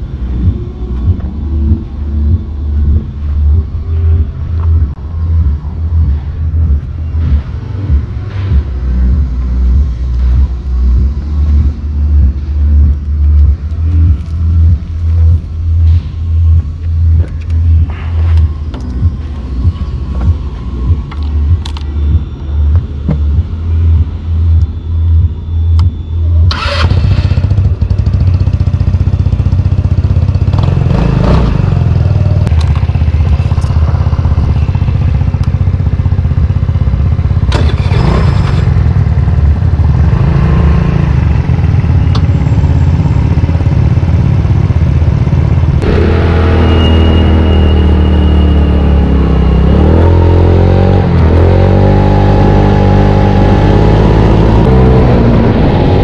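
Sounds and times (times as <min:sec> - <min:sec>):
small motorcycle engine running: 0:26.5 - 0:48.3.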